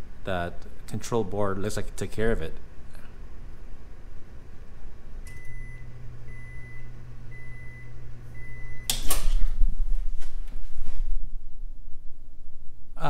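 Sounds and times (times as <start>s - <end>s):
microwave low hum: 0.0s - 13.0s
microwave short beeps: 5.3s - 9.1s.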